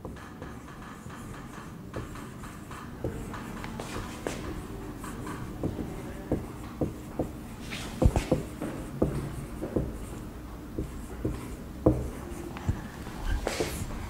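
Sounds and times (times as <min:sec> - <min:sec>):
marker writing on whiteboard: 0:00.0 - 0:14.0.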